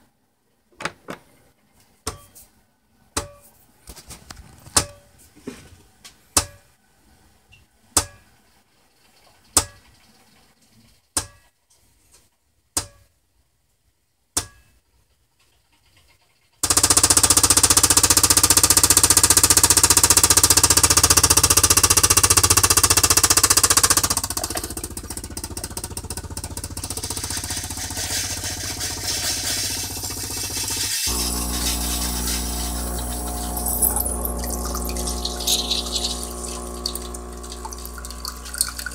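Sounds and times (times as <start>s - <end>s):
water pump buzzing hiss: 16.6s - 38.9s
coffee machine clicks: 31.7s - 38.9s.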